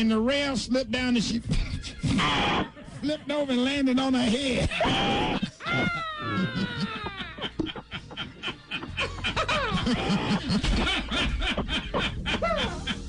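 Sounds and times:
person laughing: 4.6 - 13.0.

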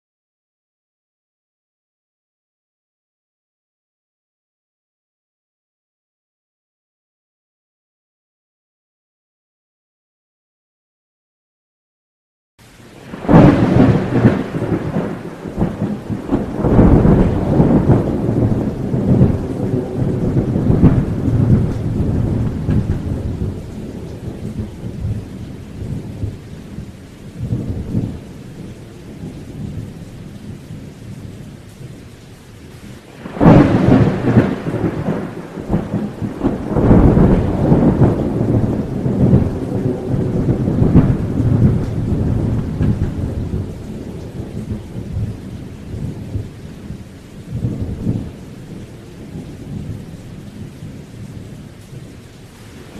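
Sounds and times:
loud thunderclap: 13.0 - 26.4, 27.4 - 28.2, 33.1 - 46.5, 47.5 - 48.4
rumble of thunder: 13.0 - 31.5, 33.1 - 52.9.

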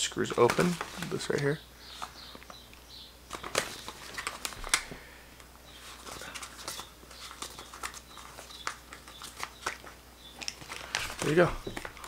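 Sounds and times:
plastic crinkling: 3.3 - 5.0, 5.8 - 12.0.

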